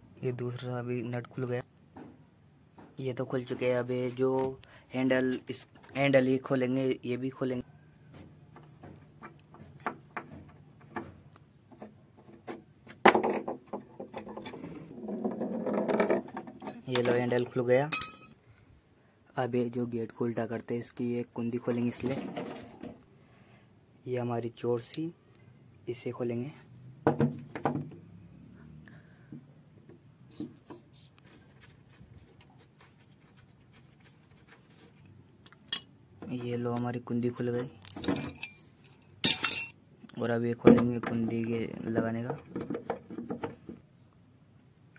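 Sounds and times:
metal handle scraping wood: 13.3s - 17.3s, 22.0s - 23.0s.

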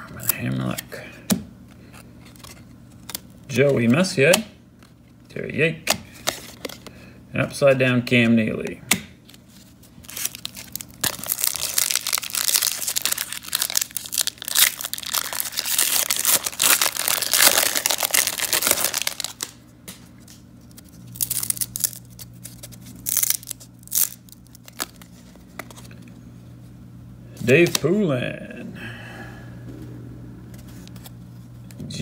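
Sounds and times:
foil wrapper crinkling and tearing: 9.8s - 19.6s, 20.2s - 25.9s.

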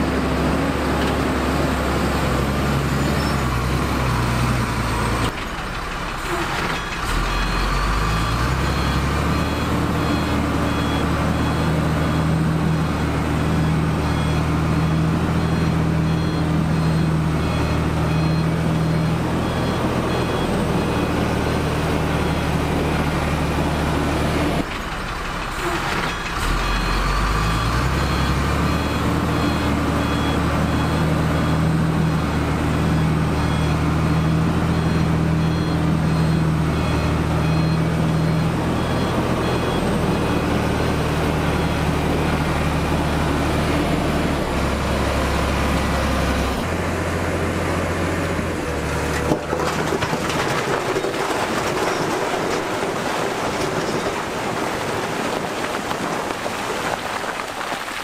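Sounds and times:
heavy diesel machinery running: 0.0s - 56.5s
reversing alarm beeps: 6.7s - 22.6s, 25.6s - 43.6s.

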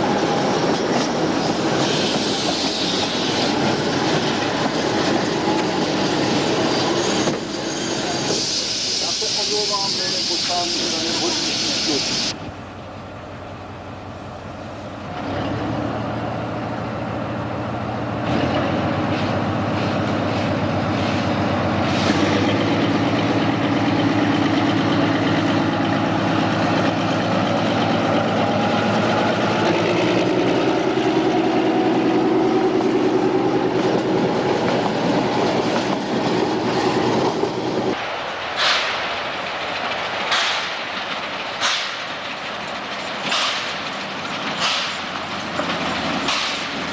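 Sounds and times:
steam locomotive chuffs: 0.0s - 12.4s, 16.2s - 46.9s
diesel locomotive engine: 0.0s - 46.9s
wheels clacking on rail joints: 18.2s - 46.9s.

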